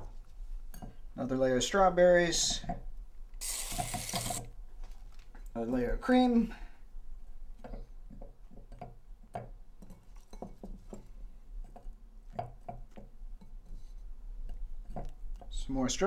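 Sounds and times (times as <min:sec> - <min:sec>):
fruit tapping and clinking on glass: 0:11.7 - 0:13.6.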